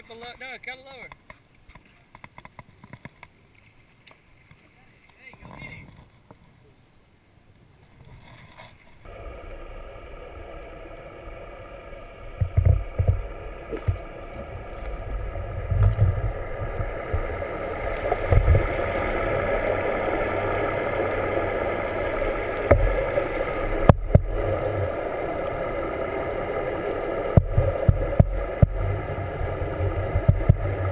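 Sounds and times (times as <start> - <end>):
underwater machinery hum: 8.0 - 30.9
water thumps and gurgles: 8.0 - 30.9.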